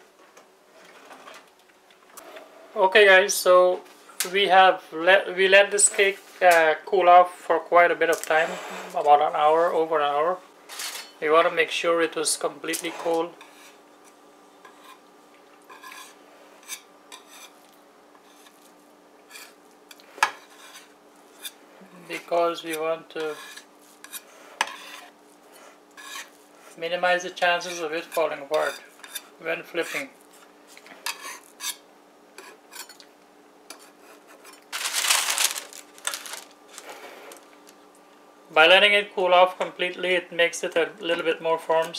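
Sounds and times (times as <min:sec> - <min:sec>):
knife scraping metal pan: 0:15.7 - 0:17.6, 0:20.3 - 0:21.6, 0:23.2 - 0:26.4, 0:28.1 - 0:30.1, 0:31.0 - 0:31.8
parchment paper rustling: 0:33.8 - 0:37.9.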